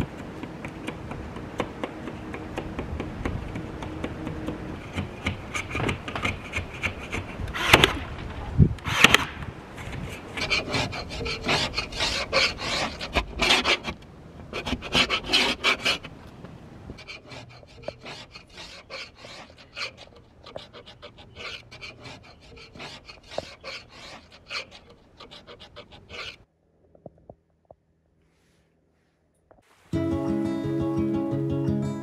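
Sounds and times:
scraper blade rasping on glass: 17.0s - 26.4s.

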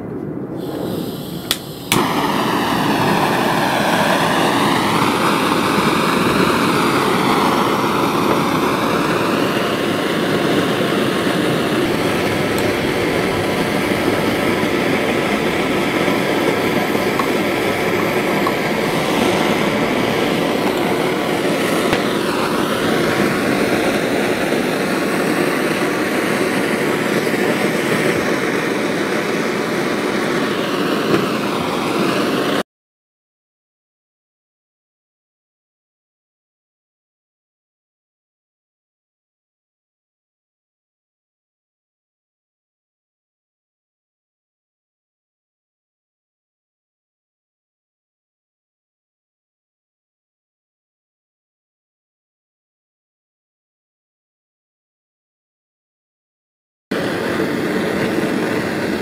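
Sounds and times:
blowtorch flame roaring: 0.4s - 32.6s, 56.9s - 59.0s.

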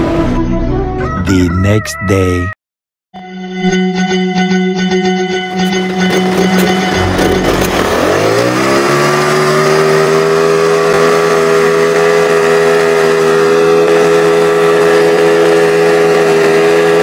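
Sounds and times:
motorcycle engine revving: 5.5s - 17.0s.

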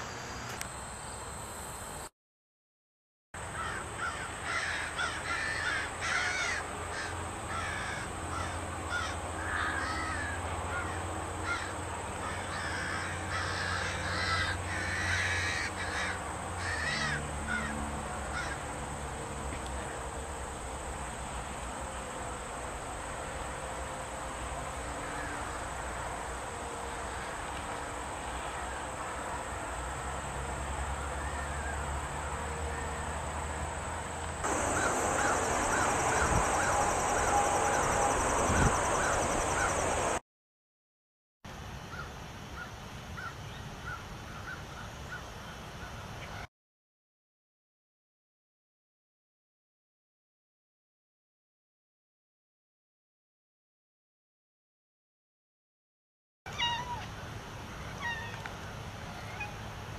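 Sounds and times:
crows cawing: 3.5s - 18.6s, 34.5s - 40.2s.

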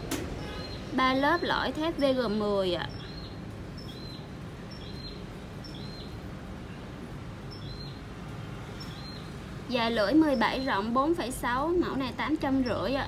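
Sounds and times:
small bird chirping: 0.4s - 6.2s, 7.5s - 8.1s, 8.8s - 10.9s.

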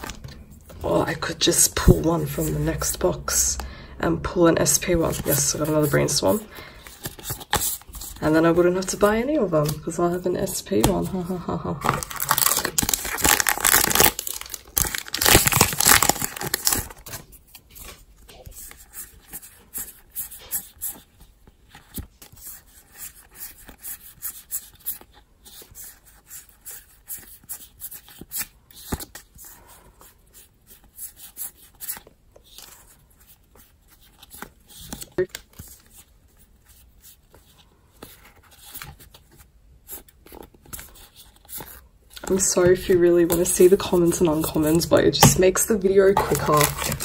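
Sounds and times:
cards clicking and rustling: 6.7s - 8.2s, 30.7s - 47.0s
wrapper tearing and rustling: 11.6s - 18.8s, 46.1s - 47.0s.

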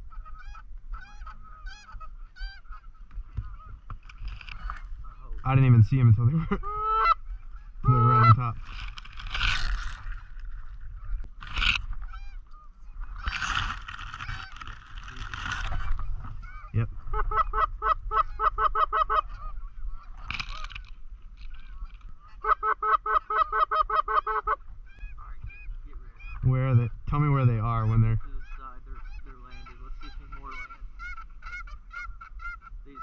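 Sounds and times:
goose honking: 0.0s - 3.8s, 6.6s - 8.6s, 13.2s - 14.8s, 21.5s - 33.0s
rustling noise: 8.5s - 12.2s, 13.1s - 16.4s.

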